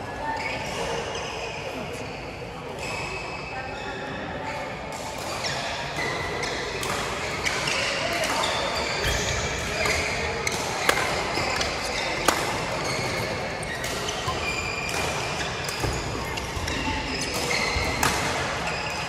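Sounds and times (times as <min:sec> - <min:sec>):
shoes squeaking on court floor: 0:05.4 - 0:19.0
racket hitting shuttlecock: 0:06.4 - 0:18.7.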